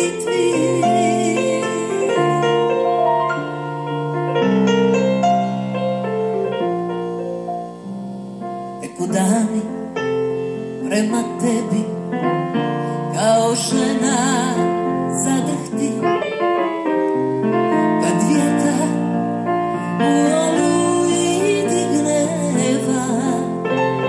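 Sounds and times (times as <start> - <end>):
woman singing with vibrato: 0.0 - 3.0, 13.2 - 16.2, 17.9 - 19.2, 20.0 - 23.6
electric keyboard chords: 0.0 - 24.0.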